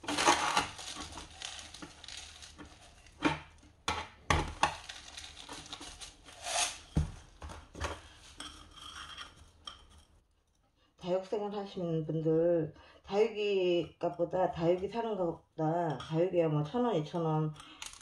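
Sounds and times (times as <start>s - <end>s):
grit scraping: 0.0s - 7.0s.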